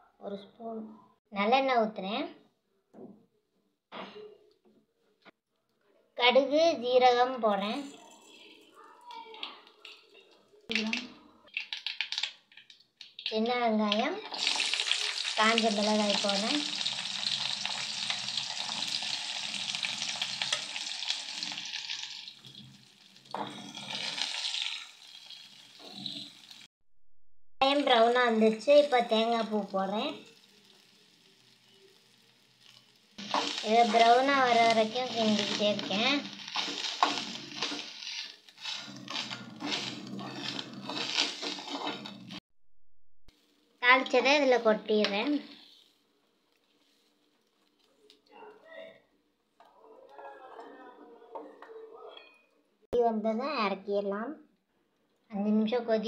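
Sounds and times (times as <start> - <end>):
food sizzling in hot oil: 9.8 - 26.7, 27.6 - 42.4, 43.4 - 46.0
metal spoon scraping a pan: 16.1 - 26.6, 32.6 - 42.4.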